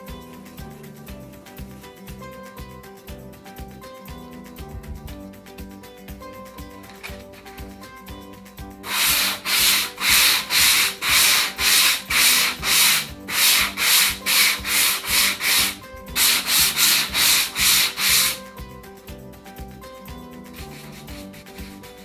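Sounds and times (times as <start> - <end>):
sandpaper rubbing on fabric: 8.8 - 18.4, 20.5 - 22.0.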